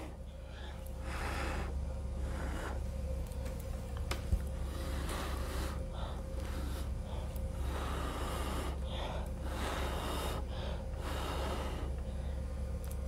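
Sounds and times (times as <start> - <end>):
strong blows of breath: 4.6 - 12.6.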